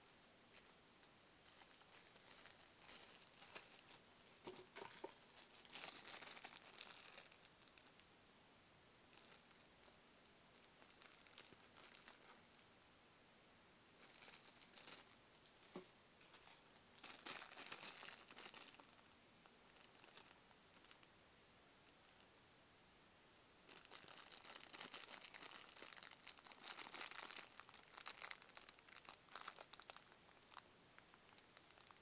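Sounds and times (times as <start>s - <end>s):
plastic bag crinkling: 1.4s - 8.1s, 9.1s - 9.9s, 10.6s - 12.6s, 14.0s - 21.1s, 23.7s - 32.0s.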